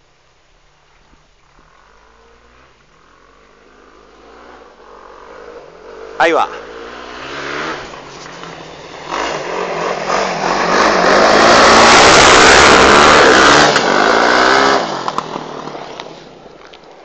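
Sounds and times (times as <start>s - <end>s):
rally car engine revving: 6.0s - 16.0s
car sliding on gravel: 7.4s - 17.0s.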